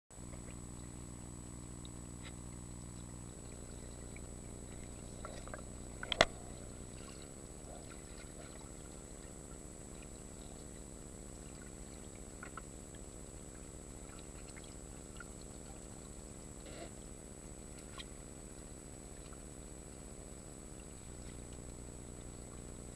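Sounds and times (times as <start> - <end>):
muffled water noise: 0.1 - 22.9
steady low hum: 0.1 - 22.9
small clicks: 5.2 - 6.4.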